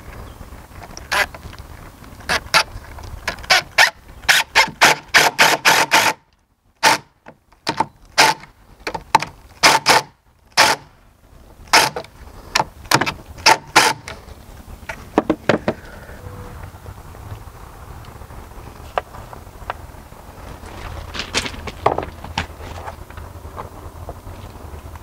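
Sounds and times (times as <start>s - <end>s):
cordless driver bursts: 3.5s - 6.2s.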